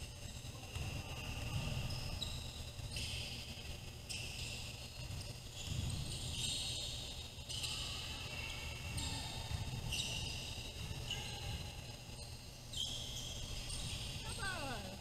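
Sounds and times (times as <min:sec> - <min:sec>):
shoe squeaks: 0:01.8 - 0:03.4, 0:05.5 - 0:08.1, 0:09.0 - 0:11.5, 0:12.1 - 0:14.6.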